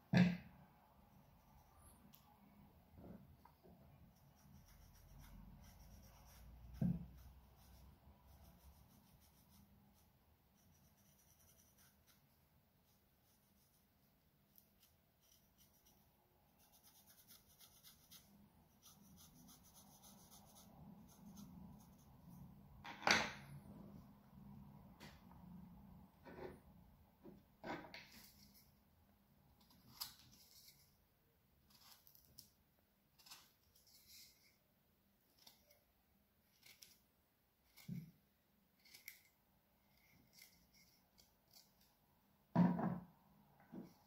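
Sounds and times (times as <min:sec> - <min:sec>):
pencil scratching on wood: 0:04.0 - 0:22.4
knock: 0:42.5 - 0:43.0.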